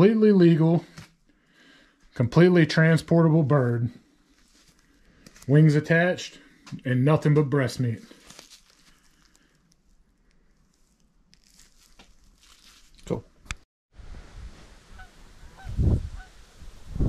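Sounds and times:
rustling handling of bird carcass: 0:04.2 - 0:05.6, 0:08.0 - 0:13.2
distant geese honking: 0:14.9 - 0:16.4
wind buffeting microphone: 0:15.4 - 0:17.0.

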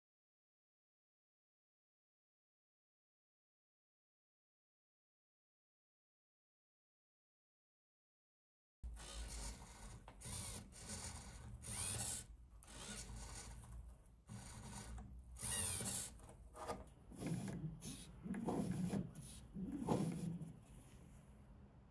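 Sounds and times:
mechanical whirring and rubbing: 0:08.9 - 0:21.2.

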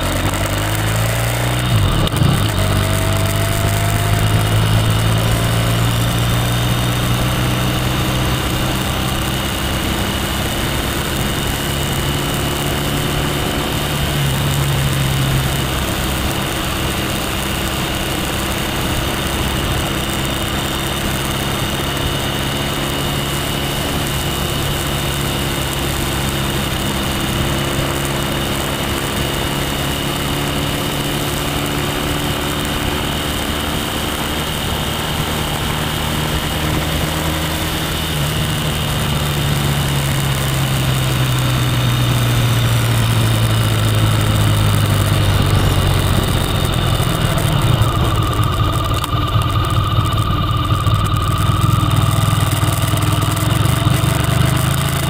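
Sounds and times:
motorcycle engine running: 0:00.0 - 0:55.0
rushing wind noise: 0:32.9 - 0:55.0.

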